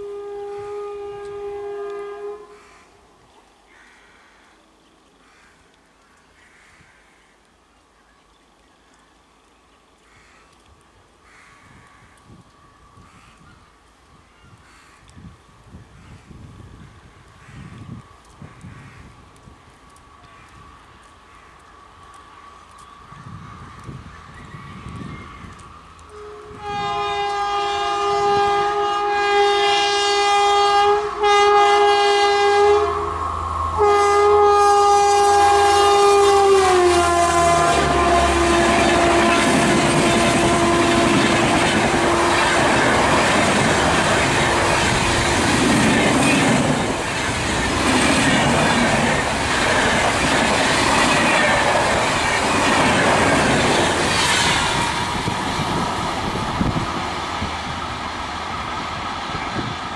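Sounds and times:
locomotive horn blasts: 0.0 - 2.7, 26.1 - 45.4
train rushing past: 22.4 - 59.9.

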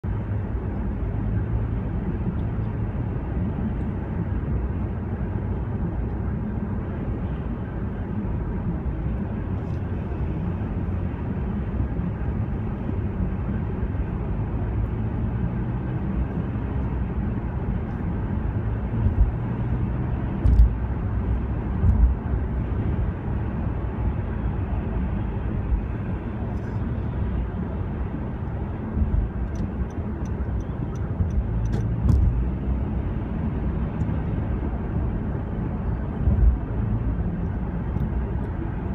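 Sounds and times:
car road and engine noise: 0.0 - 38.9
low thumps: 21.7 - 22.2, 31.2 - 32.5.

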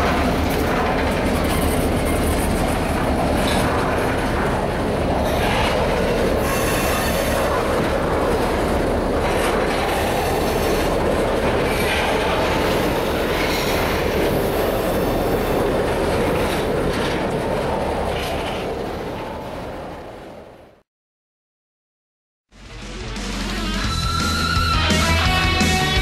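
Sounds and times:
train wheels rumbling on rails: 0.0 - 20.8
high-pitched wheel squeal: 6.4 - 7.4.

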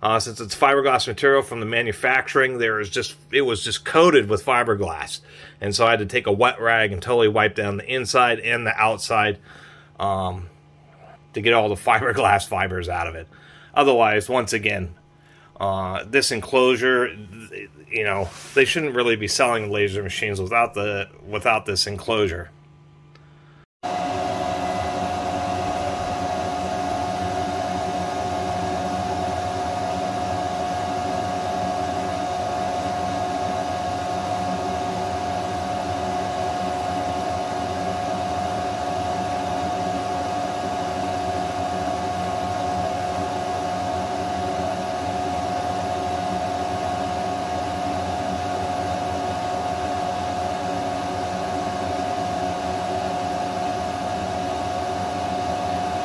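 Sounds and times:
fans whirring: 0.0 - 22.5, 23.1 - 56.0
high steady tone: 23.8 - 52.2.

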